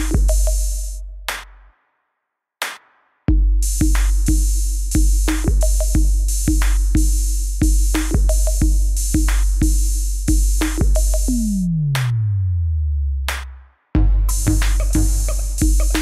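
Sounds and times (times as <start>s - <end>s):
bass note sliding downward: 11.3s - 13.2s
electronic music with drum-machine beat: 14.0s - 16.0s.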